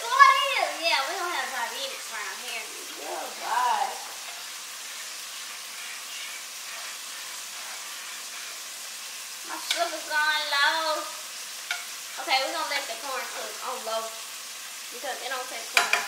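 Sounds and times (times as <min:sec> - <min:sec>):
food sizzling: 0:00.0 - 0:16.0
person speaking: 0:00.8 - 0:04.3
spoon stirring a pot: 0:04.2 - 0:08.9, 0:11.7 - 0:12.0.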